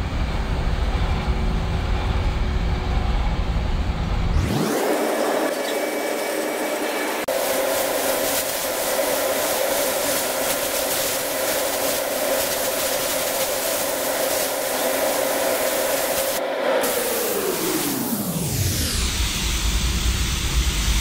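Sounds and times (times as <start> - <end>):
steady hum: 0.0 - 21.0
spray gun hissing: 4.9 - 18.3.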